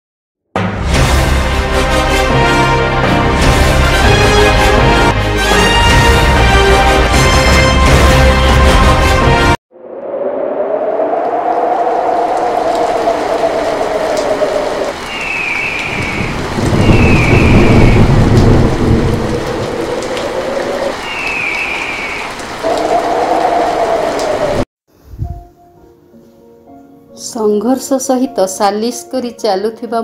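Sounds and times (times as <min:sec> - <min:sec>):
heavy rain: 0:01.4 - 0:09.5, 0:10.4 - 0:24.7
rolling thunder: 0:09.7 - 0:24.7
howling wind: 0:09.7 - 0:25.4.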